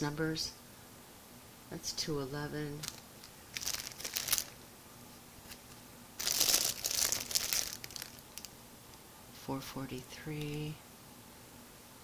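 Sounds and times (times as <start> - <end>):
plastic packaging crinkling: 2.8 - 4.6, 5.4 - 8.6.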